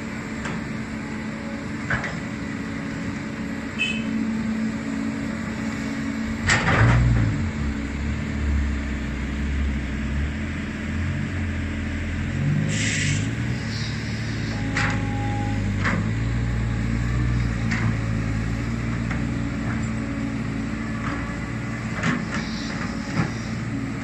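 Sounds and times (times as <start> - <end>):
excavator diesel engine running: 0.0 - 24.0
loud clunk: 6.4 - 7.3.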